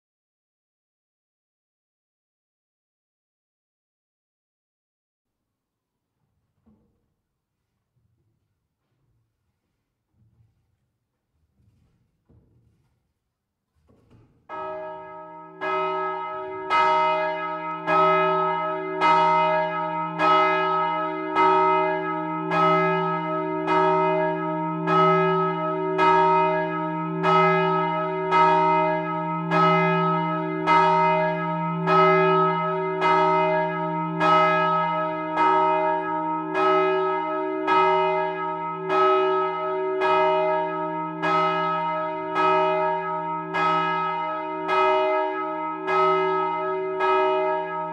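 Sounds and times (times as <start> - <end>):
church bell ringing: 14.5 - 47.9.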